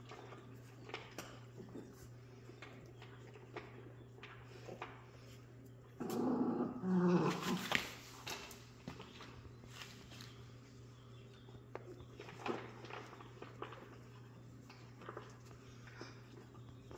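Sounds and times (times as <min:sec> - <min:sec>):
puppy growling: 0:05.9 - 0:08.0
puppies shuffling on bedding: 0:07.0 - 0:16.9.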